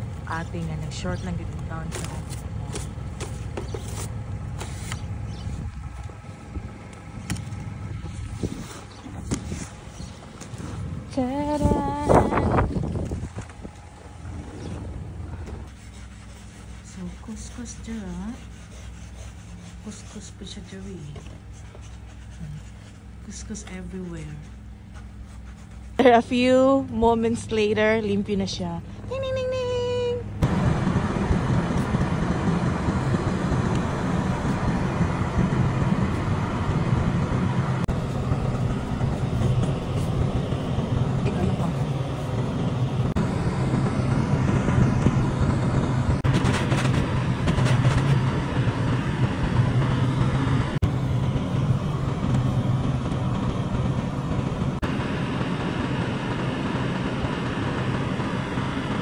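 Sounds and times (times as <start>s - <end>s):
wind buffeting microphone: 2.4s - 15.7s, 30.4s - 59.0s
car road noise with tyre rumble: 30.4s - 59.0s.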